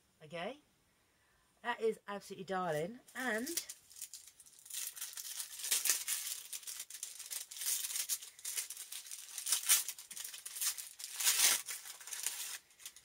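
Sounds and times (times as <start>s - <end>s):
packaging crinkling: 3.3s - 13.0s.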